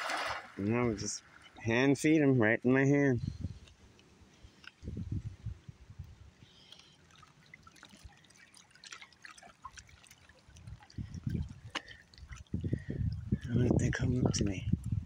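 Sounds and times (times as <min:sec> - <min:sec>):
river water lapping: 0:00.0 - 0:01.9, 0:06.1 - 0:13.4
small drips: 0:06.0 - 0:13.6.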